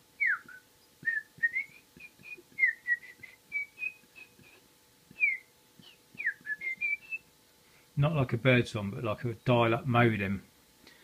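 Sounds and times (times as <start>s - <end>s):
man whistling high chirps: 0.2s - 7.3s.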